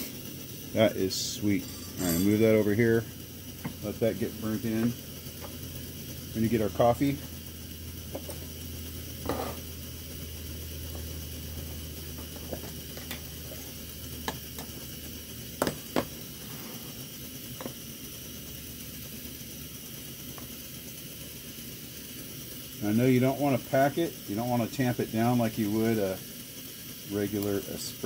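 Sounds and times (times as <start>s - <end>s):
camp stove hissing: 0.0s - 28.0s.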